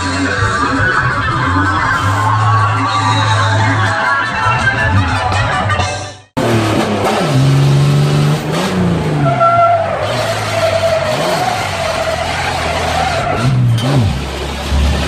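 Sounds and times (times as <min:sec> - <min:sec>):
car engine revving: 0:06.4 - 0:15.0
tyres squealing: 0:09.2 - 0:14.7.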